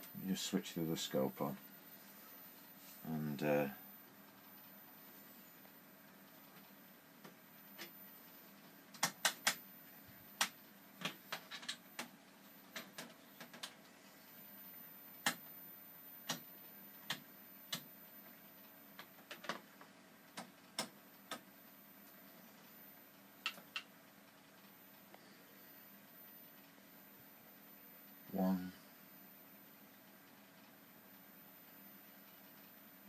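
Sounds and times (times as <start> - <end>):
faint steady hum: 0.0 - 33.0.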